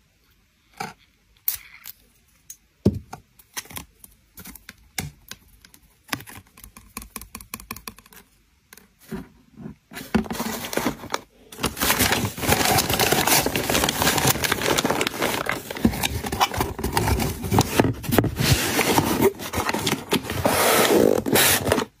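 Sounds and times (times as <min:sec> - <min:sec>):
paper crinkling and rustling: 0:09.9 - 0:22.0
items tapping in cardboard box: 0:10.0 - 0:20.4.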